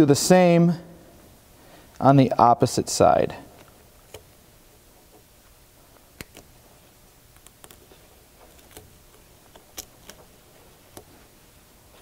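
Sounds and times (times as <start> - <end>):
cutting nips clicking: 7.3 - 10.3.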